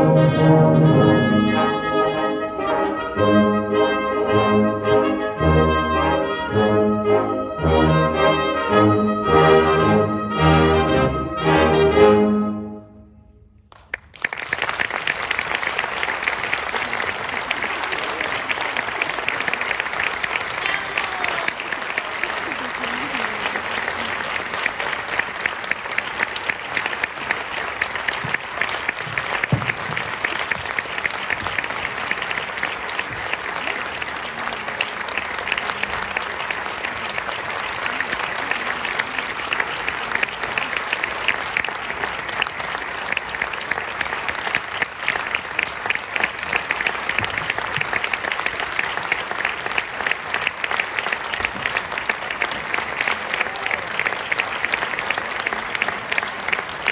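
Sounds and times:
audience applauding: 13.7 - 56.9.

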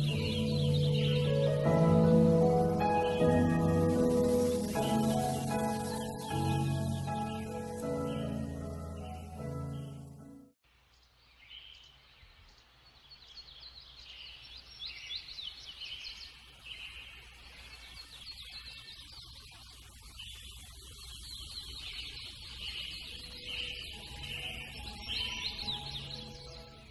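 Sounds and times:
small birds chirping: 0.0 - 10.2, 10.8 - 26.9
faint music: 0.0 - 10.5, 17.1 - 26.9.

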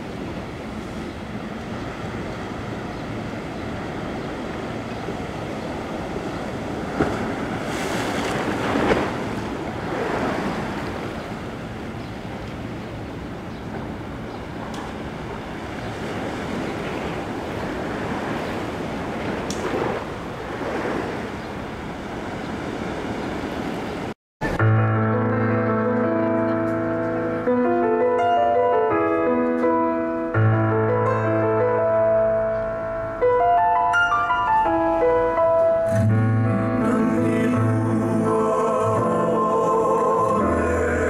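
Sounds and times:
ocean waves breaking: 0.0 - 24.6.

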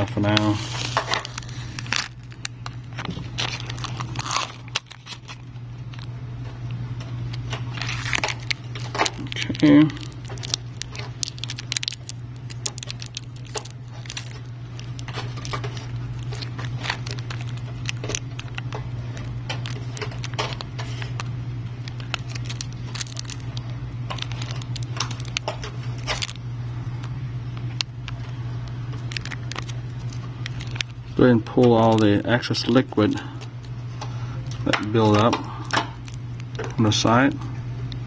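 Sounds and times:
steady low hum: 0.0 - 38.0
plastic film crinkling: 0.2 - 6.1, 7.3 - 26.4, 28.9 - 33.1.

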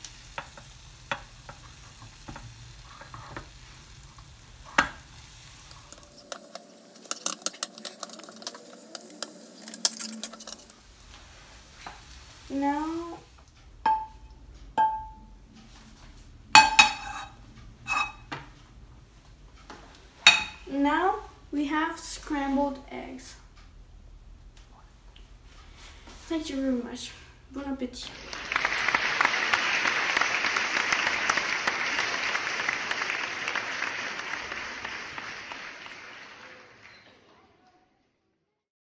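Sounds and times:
spatula knocking on frying pan: 0.4 - 1.6, 13.9 - 14.2, 14.8 - 15.3, 16.6 - 17.3, 20.3 - 20.7
crowd applause: 28.1 - 37.5.

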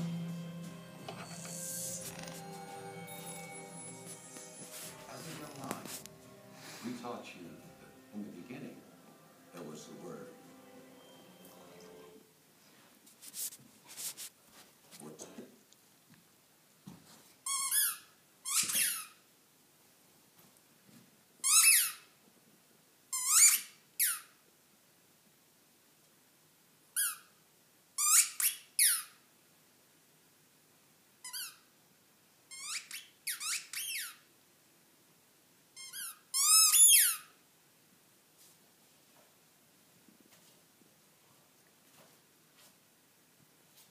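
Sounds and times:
dog toy squeaking: 17.4 - 19.2, 21.4 - 22.0, 23.2 - 24.3, 28.0 - 29.2, 31.3 - 31.6, 32.5 - 34.2, 35.8 - 37.3.

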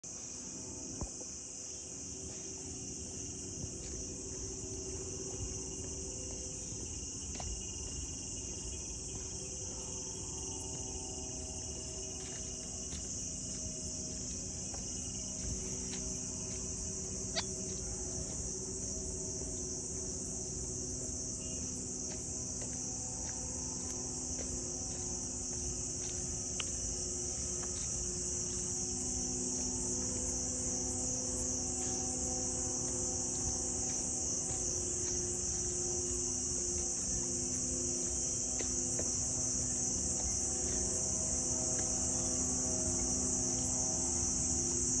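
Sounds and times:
high-pitched insect chorus: 0.0 - 45.0.

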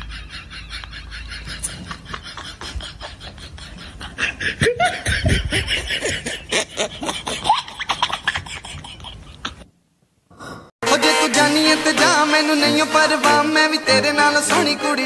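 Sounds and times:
person laughing: 0.0 - 9.7.

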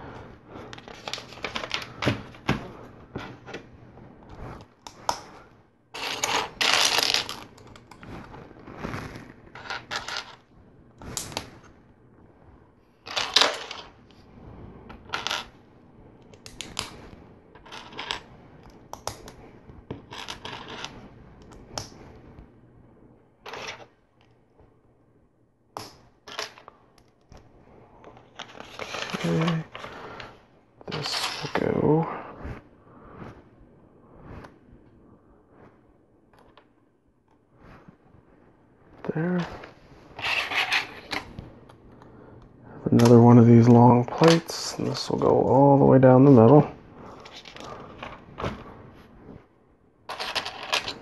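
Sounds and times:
plastic bricks clicking and clattering: 50.1 - 51.0.

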